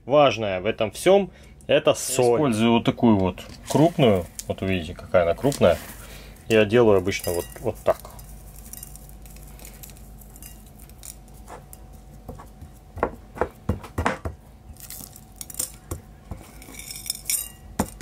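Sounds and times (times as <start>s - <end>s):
steady low hum: 0.0s - 18.0s
small knocks and clinks on plate: 7.0s - 9.0s.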